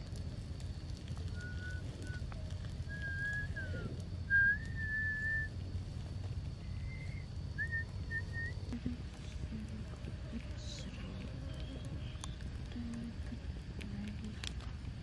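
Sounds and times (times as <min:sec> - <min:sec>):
low steady rumble: 0:00.0 - 0:15.0
person whistling long notes: 0:01.3 - 0:02.2, 0:02.8 - 0:05.5, 0:06.8 - 0:08.6.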